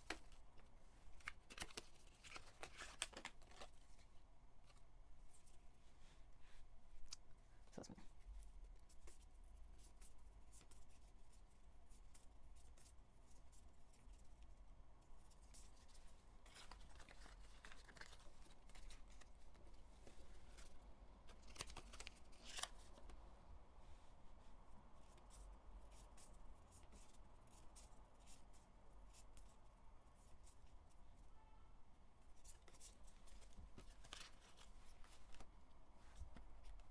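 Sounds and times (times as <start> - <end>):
cards clicking and rustling: 0.0 - 0.5, 1.1 - 4.1, 16.5 - 23.2, 32.5 - 35.5.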